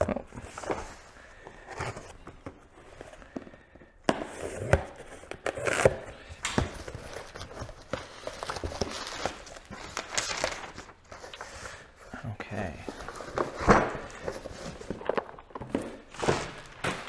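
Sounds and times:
packing materials rustling: 5.0 - 12.1, 12.8 - 17.0.

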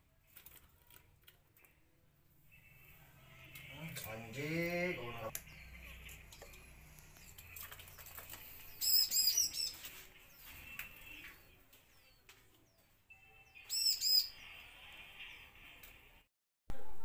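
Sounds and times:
bird high-pitched chirps: 5.4 - 14.7.

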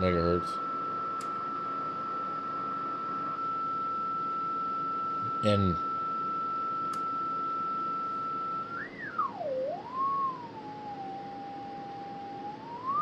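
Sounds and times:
radio whistle sweeping in pitch: 7.5 - 13.0.

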